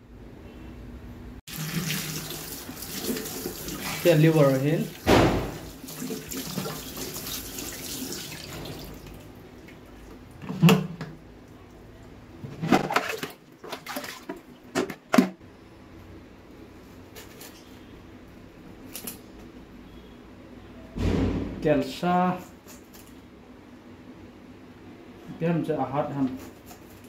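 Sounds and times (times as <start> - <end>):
tap water running into basin: 1.5 - 10.2.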